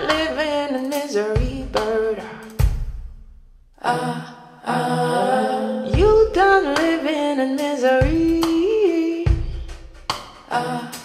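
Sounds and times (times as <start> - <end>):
person singing wordless notes: 3.8 - 9.4
bass drum strikes: 5.9 - 7.0.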